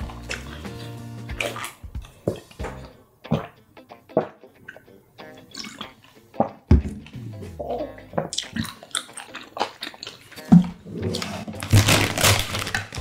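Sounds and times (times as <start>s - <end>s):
background music: 0.0s - 13.0s
person gulping a drink: 5.5s - 6.2s, 7.0s - 10.6s.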